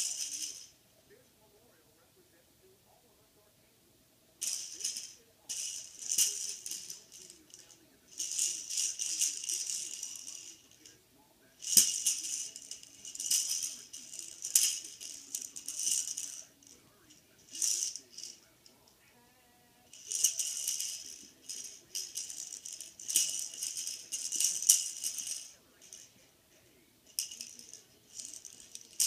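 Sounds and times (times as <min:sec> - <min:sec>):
plastic rattle toy shaking: 0:00.0 - 0:00.8, 0:04.4 - 0:10.9, 0:11.5 - 0:18.8, 0:19.9 - 0:26.2, 0:27.1 - 0:29.0.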